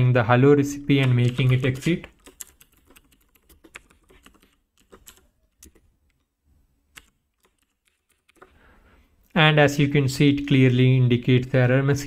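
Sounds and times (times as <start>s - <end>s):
keyboard typing: 0.8s - 6.3s, 6.9s - 8.6s.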